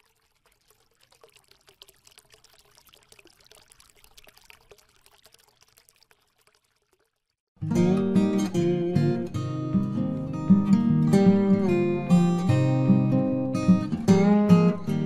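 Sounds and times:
faint trickling water: 0.0 - 7.5
strummed acoustic guitar music: 7.6 - 15.0.

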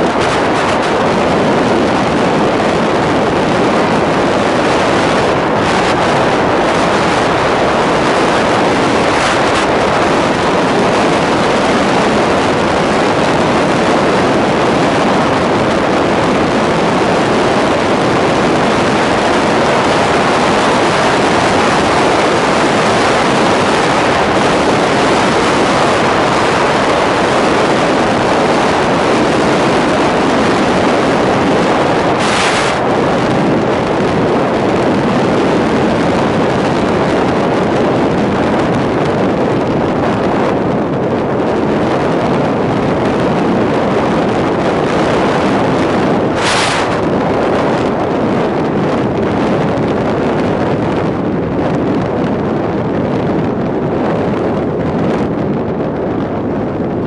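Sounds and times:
vehicle running and road noise: 0.0 - 57.0
wind rush over microphone: 0.0 - 57.0.

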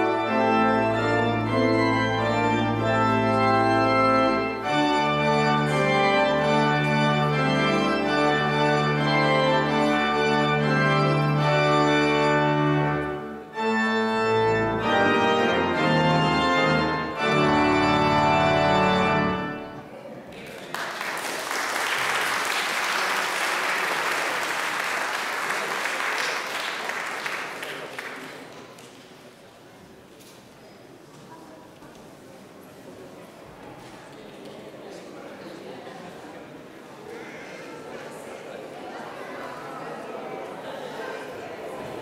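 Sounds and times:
pipe organ chords: 0.0 - 19.8
audience applause: 20.3 - 29.0.

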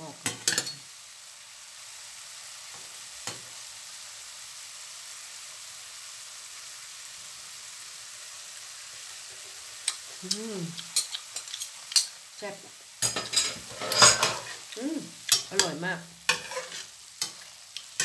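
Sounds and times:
food sizzling in a frying pan: 0.0 - 18.0
person humming: 10.2 - 10.9, 14.8 - 15.8
spoon clicking against pan: 15.3 - 15.7.

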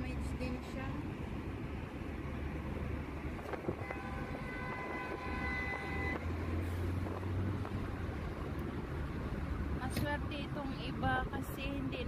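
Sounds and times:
car road and engine rumble: 0.0 - 12.0
vehicle horn: 3.6 - 6.3.

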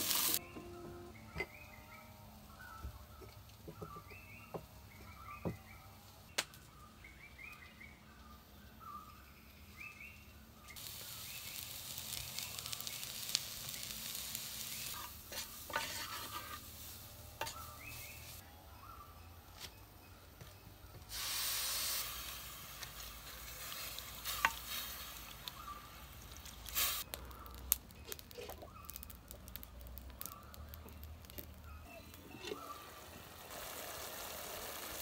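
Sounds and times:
food sizzling in a clay pot: 0.0 - 0.4, 10.7 - 18.4, 21.1 - 35.0
wooden spoon stirring: 15.0 - 16.7.

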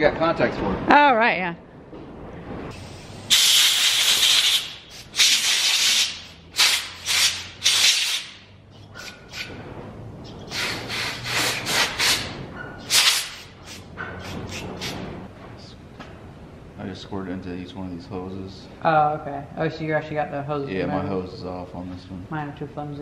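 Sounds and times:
aerosol spray hissing: 2.8 - 8.4, 10.5 - 15.0.

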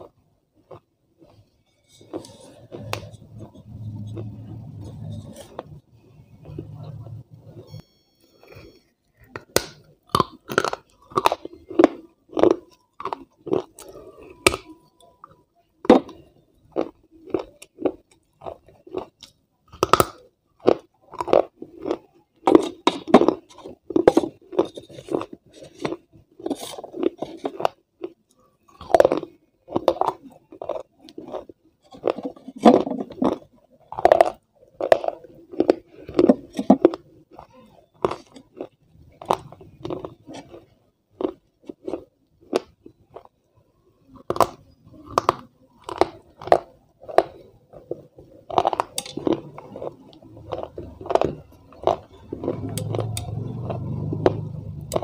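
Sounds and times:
person chewing crunchy food: 0.0 - 55.0.

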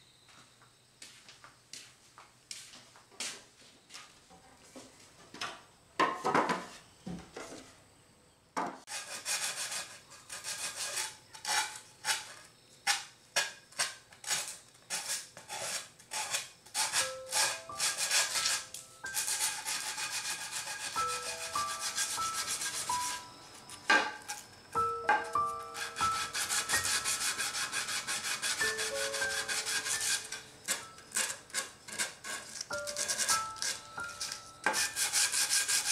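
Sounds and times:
hand-sanding wood: 8.9 - 12.4, 14.3 - 23.2, 25.8 - 35.9
soft music notes: 24.7 - 27.5.

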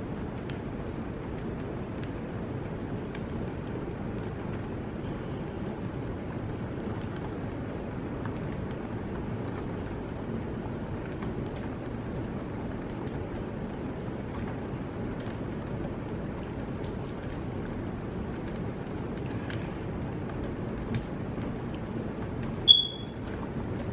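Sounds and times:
heavy rain pouring: 0.0 - 23.9.

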